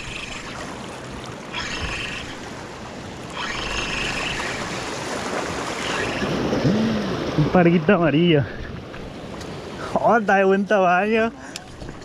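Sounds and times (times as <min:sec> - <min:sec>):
small waves washing against rocks: 0:00.0 - 0:07.7.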